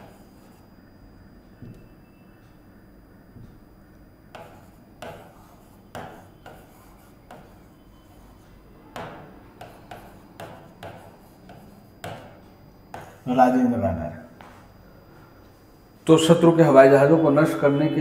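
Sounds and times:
marker pen writing on whiteboard: 0.0s - 0.7s, 3.4s - 13.4s.

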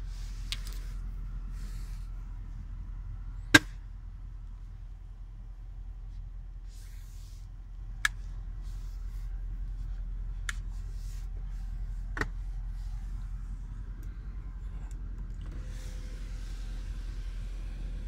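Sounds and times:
car cabin hum: 0.0s - 18.0s
console compartment clicks: 12.1s - 12.4s.

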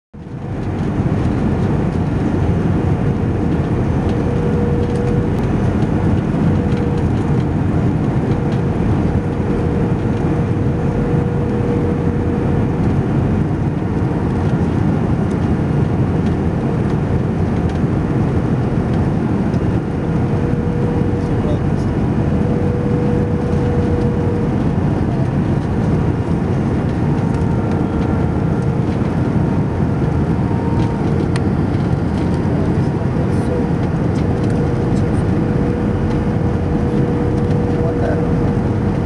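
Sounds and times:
aircraft cabin engine roar: 0.2s - 39.0s
faint steady hum: 0.6s - 39.0s.

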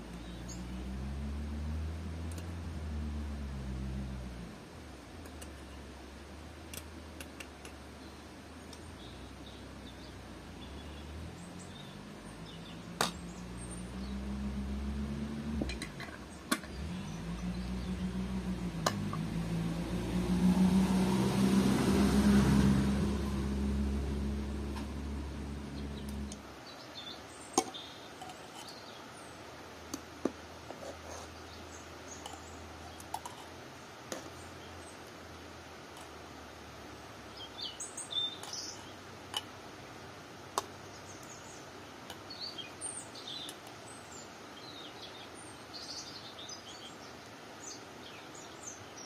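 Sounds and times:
low wavering drone: 16.7s - 26.4s.

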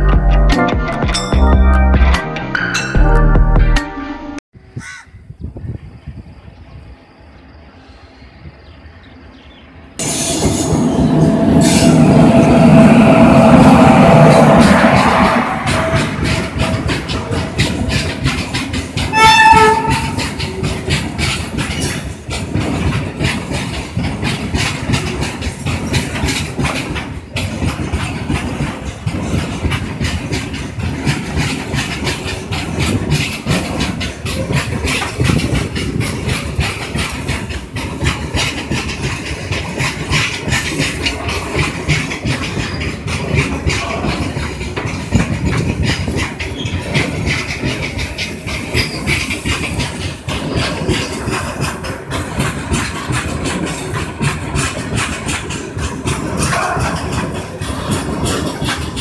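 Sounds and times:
train wheels clattering over rail joints: 10.0s - 59.0s.

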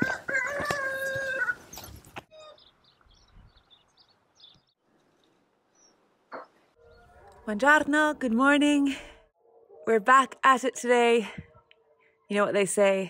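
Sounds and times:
rooster crowing: 0.0s - 1.6s
small birds chirping: 1.6s - 7.4s.

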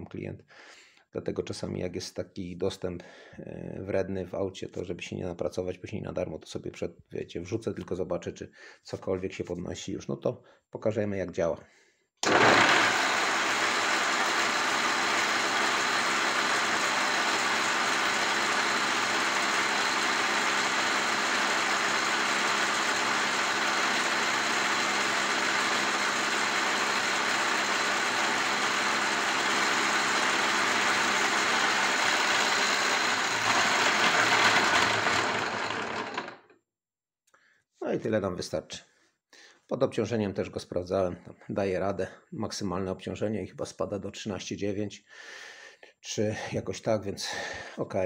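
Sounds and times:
motor spinning alternator: 12.2s - 36.4s.

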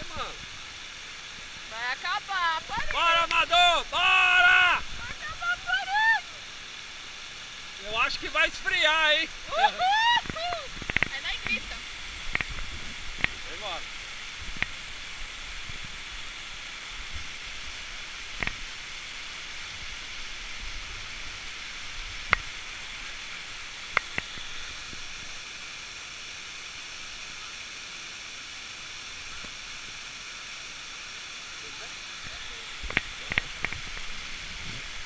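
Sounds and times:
waterfall rushing water: 0.0s - 35.0s
sharp clicks: 10.8s - 11.6s.

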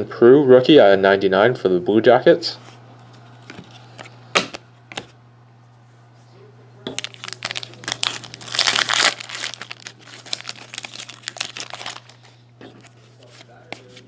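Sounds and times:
cards being handled: 3.0s - 5.2s, 6.9s - 14.0s
foil wrapper crinkling: 6.9s - 14.0s.

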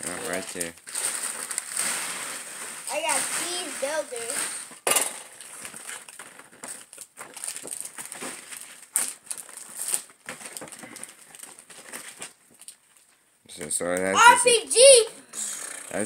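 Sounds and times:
packaging crinkling and rustling: 0.0s - 4.6s, 5.3s - 13.2s.

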